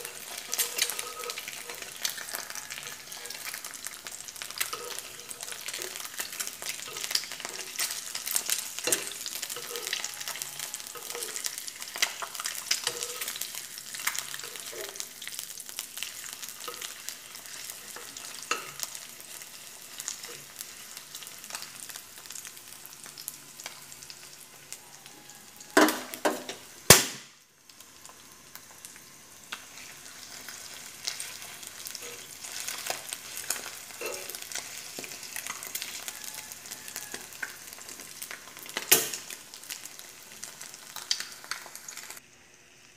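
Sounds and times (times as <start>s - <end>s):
metal spoon scraping a pan: 0.0s - 3.8s, 4.4s - 15.1s, 16.6s - 19.1s, 29.7s - 38.0s
egg sizzling in oil: 0.0s - 42.9s.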